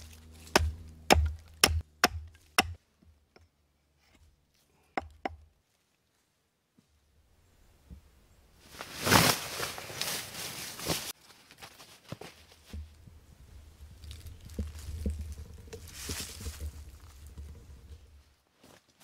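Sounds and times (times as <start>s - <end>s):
footsteps on dry leaves: 0.0s - 1.0s, 8.6s - 12.8s
low steady rumble: 0.0s - 4.4s, 12.8s - 18.3s.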